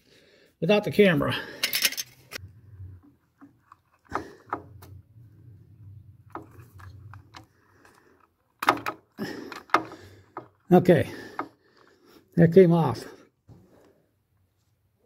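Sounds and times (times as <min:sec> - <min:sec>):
plastic and metal clicks: 0:06.2 - 0:10.7.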